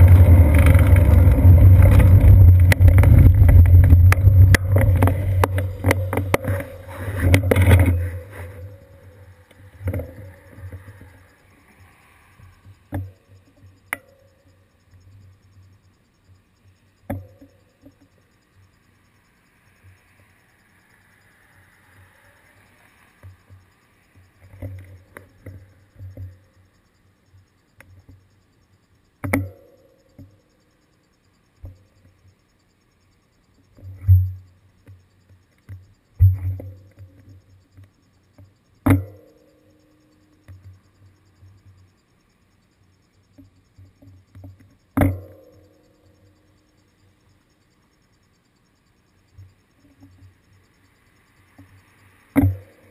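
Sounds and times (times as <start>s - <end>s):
knocks and low thumps on bicycle: 0.0s - 9.2s, 29.2s - 30.4s, 33.6s - 39.4s, 43.3s - 46.4s, 51.6s - 52.9s
bicycle rolling rumble: 0.0s - 13.8s.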